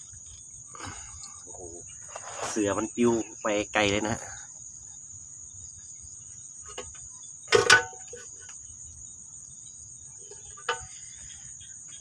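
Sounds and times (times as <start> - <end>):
insect chorus trilling: 0.0 - 12.0.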